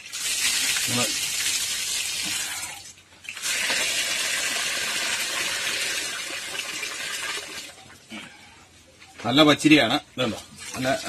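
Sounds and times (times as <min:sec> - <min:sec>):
water poured onto ground: 0:00.0 - 0:07.7
water splashing in a bowl: 0:00.0 - 0:07.9, 0:10.5 - 0:11.0.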